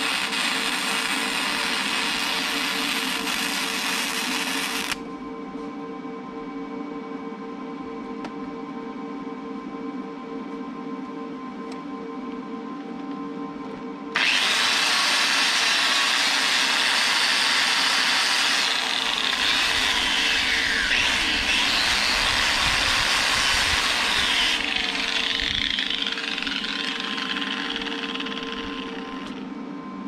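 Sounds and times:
angle grinder grinding steel: 0.0s - 5.0s, 14.2s - 29.5s.

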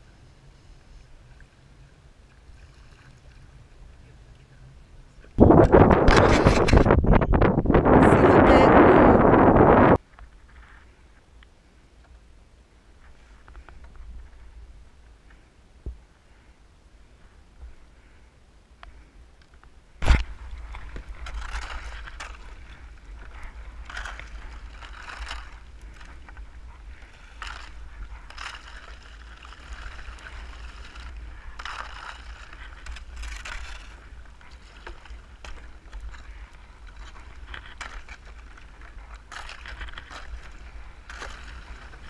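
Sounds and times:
ice scraping against hull: 5.4s - 7.2s, 20.0s - 42.0s
paddle splashing: 20.0s - 42.0s.

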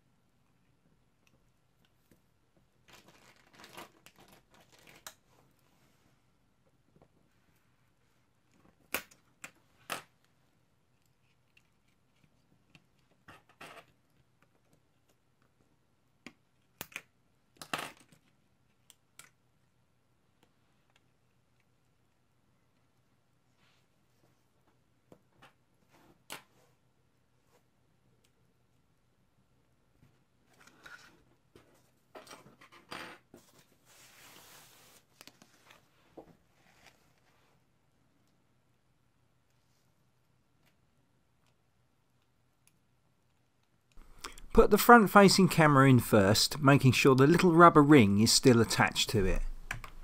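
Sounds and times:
soft rustle: 33.3s - 37.8s.

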